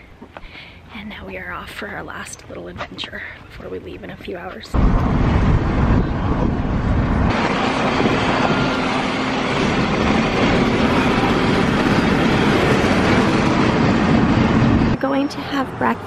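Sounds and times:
road and wind noise in car: 0:03.6 - 0:16.0.

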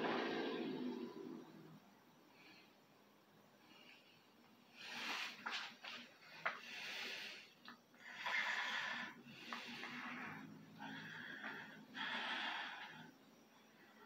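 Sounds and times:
man breathing hard: 0:06.5 - 0:13.4.

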